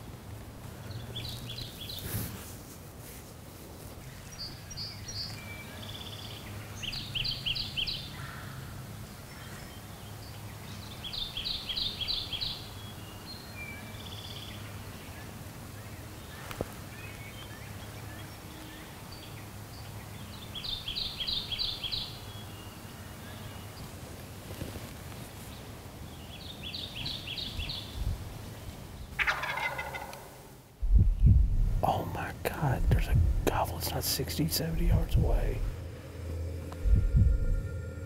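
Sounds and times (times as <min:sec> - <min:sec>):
low background hum: 0:00.0 - 0:38.0
birds calling softly: 0:00.6 - 0:02.4, 0:03.9 - 0:35.7
songbird repeating high phrase: 0:31.9 - 0:35.7.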